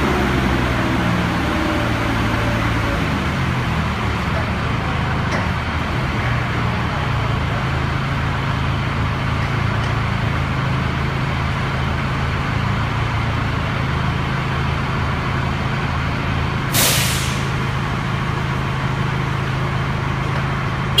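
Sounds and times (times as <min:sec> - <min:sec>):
forklift engine hum: 0:00.0 - 0:16.8, 0:17.4 - 0:21.0
short loud hiss: 0:16.8 - 0:17.5.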